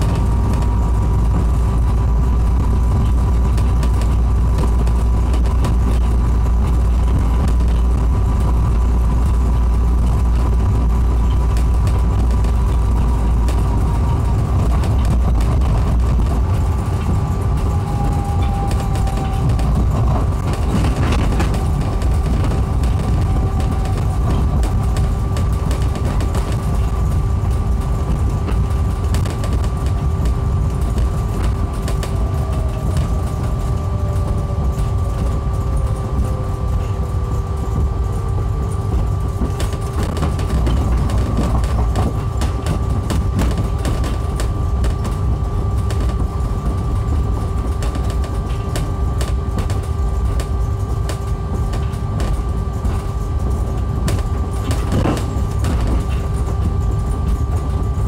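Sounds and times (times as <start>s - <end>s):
whine sliding down in pitch: 0.0s - 26.0s
vehicle cabin rumble: 0.0s - 58.0s
whining tones: 0.0s - 58.0s
small clicks and rattles: 3.0s - 58.0s.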